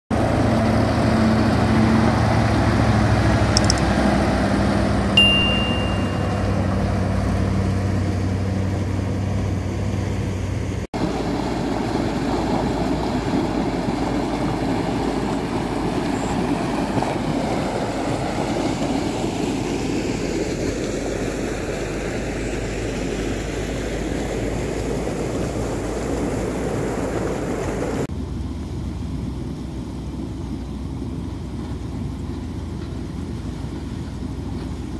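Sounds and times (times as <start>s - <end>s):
tires on gravel road: 0.1s - 34.9s
truck diesel engine running: 0.1s - 34.9s
brief high tone: 5.2s - 7.2s
water rushing through sluice gate: 10.9s - 34.9s.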